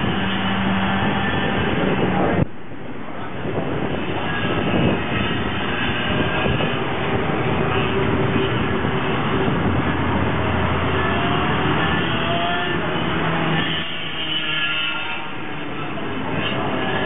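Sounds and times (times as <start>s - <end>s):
kart engine running hard: 0.0s - 2.5s, 3.2s - 17.0s.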